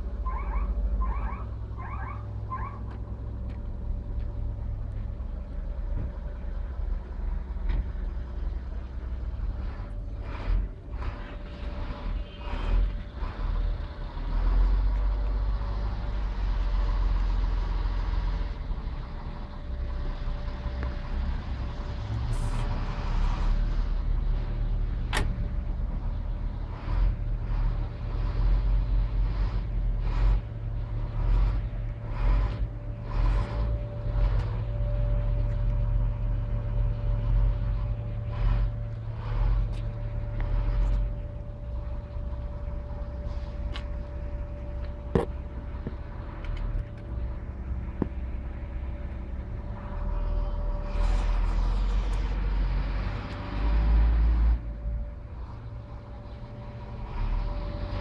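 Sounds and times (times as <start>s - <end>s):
diesel truck engine idling: 0.0s - 58.0s
faint steady whine: 23.4s - 58.0s.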